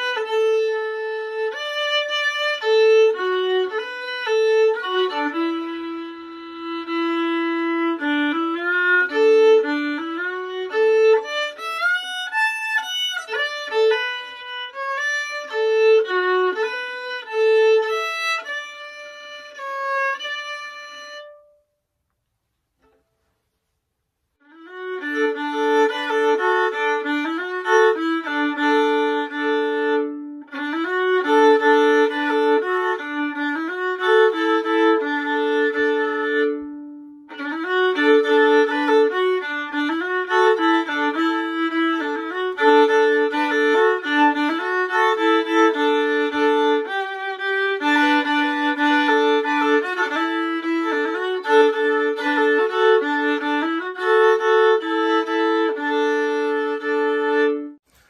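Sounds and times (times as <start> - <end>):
solo violin fiddle tune: 0.0 - 21.7, 24.4 - 58.0.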